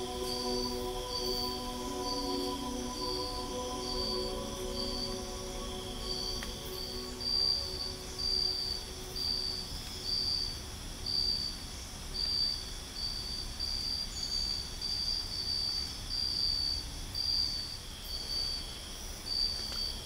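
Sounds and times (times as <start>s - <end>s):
cricket chirping pulses: 0.0s - 11.6s
faint high insect hum: 0.0s - 20.0s.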